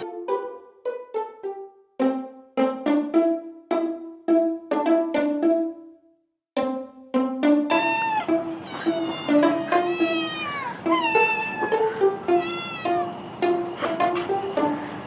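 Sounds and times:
light plucked background music: 0:00.0 - 0:15.0
kittens meowing: 0:07.7 - 0:13.2.

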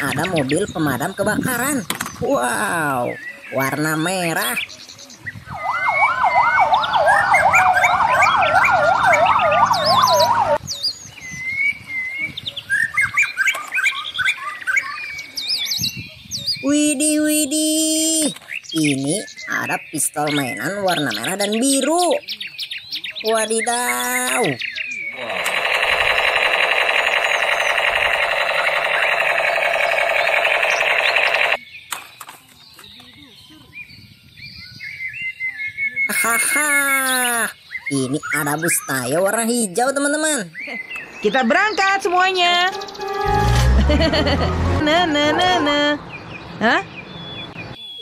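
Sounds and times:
birds chirping: 0:00.0 - 0:48.0
fire engine siren: 0:05.5 - 0:10.6, 0:42.8 - 0:45.7
toy gun rapid-fire sound effect: 0:25.2 - 0:31.6.

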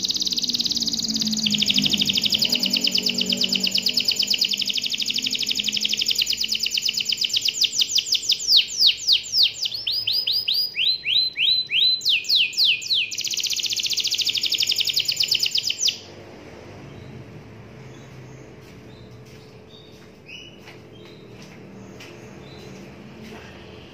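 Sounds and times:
canary singing trills: 0:00.0 - 0:16.1.

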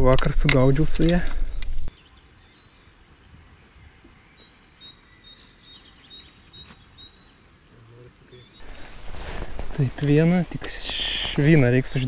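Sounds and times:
faint outdoor background noise: 0:00.0 - 0:12.0
small bird chirping: 0:01.4 - 0:09.2.

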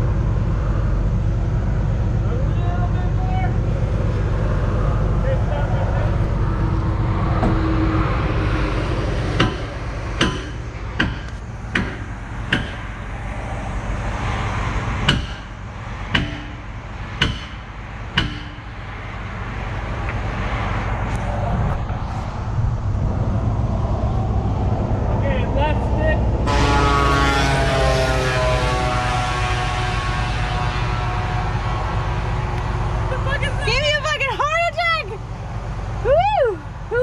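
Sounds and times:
diesel engine idling: 0:00.0 - 0:37.0
metal hammer blows: 0:09.4 - 0:13.1, 0:15.0 - 0:18.8.

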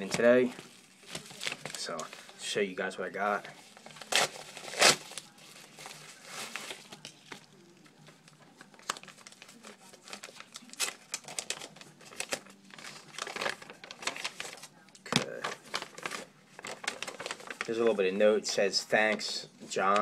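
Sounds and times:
paper crinkling and rustling: 0:00.0 - 0:02.4, 0:03.4 - 0:18.0
mailer ripping open: 0:03.9 - 0:07.0.

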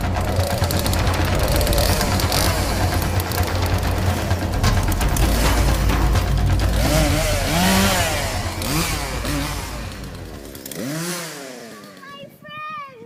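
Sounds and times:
chainsaw running: 0:00.0 - 0:12.4.

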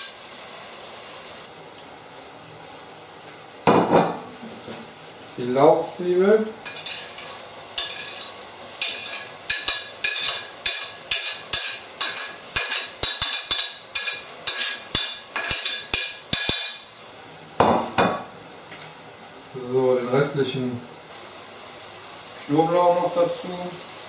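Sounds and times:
pan sizzling: 0:00.0 - 0:24.0.

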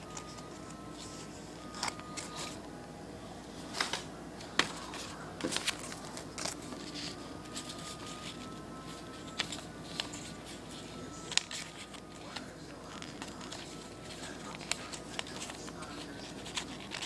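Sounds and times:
paper rustling and creasing: 0:03.6 - 0:17.0
paper crackles and snaps: 0:03.7 - 0:08.4, 0:11.2 - 0:17.0.

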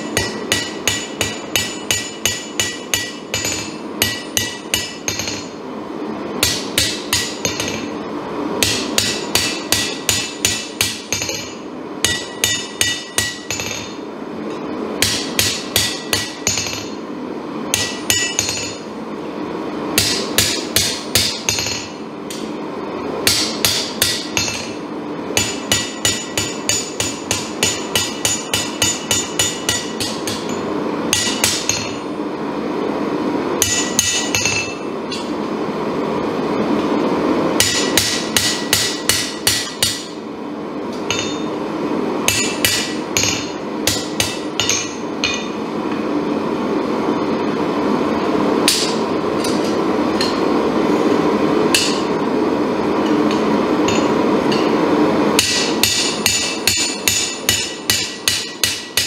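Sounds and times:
hammer striking hot steel on anvil: 0:00.0 - 0:05.7, 0:06.4 - 0:08.0, 0:08.6 - 0:17.1, 0:17.7 - 0:18.9, 0:19.9 - 0:22.6, 0:23.2 - 0:32.1, 0:33.6 - 0:35.4, 0:37.6 - 0:40.2, 0:40.9 - 0:41.6, 0:42.2 - 0:46.1, 0:48.6 - 0:50.6, 0:51.6 - 0:52.2, 0:53.0 - 0:59.0.

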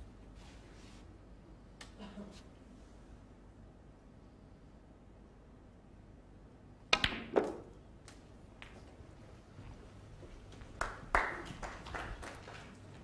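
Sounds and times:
snooker balls clicking: 0:06.9 - 0:09.0.

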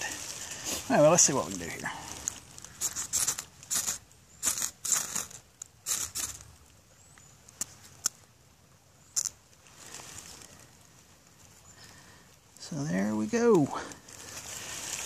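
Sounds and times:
ferro rod rasping strokes: 0:02.8 - 0:06.4.

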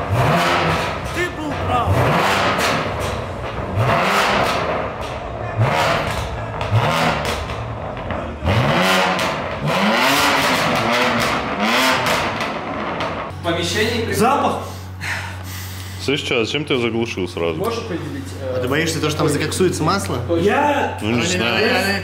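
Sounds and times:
car engine revving: 0:00.0 - 0:13.4
exhaust pops and crackles: 0:00.1 - 0:13.3.

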